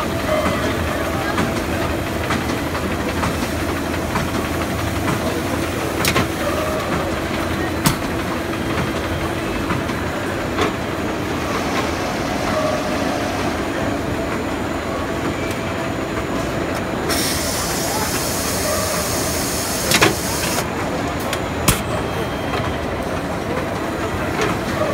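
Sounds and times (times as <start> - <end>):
machine clattering and humming: 0.0 - 24.9.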